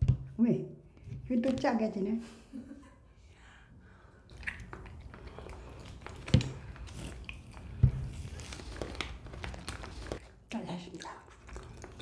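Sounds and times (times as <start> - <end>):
wet mouth clicks: 4.3 - 7.6
jelly being chewed: 4.3 - 12.0.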